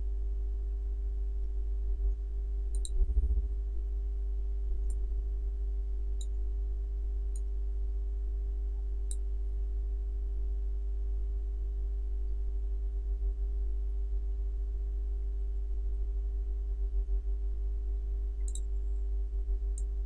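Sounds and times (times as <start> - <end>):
low electrical hum: 0.0 - 20.0
computer mouse clicking: 2.7 - 3.0.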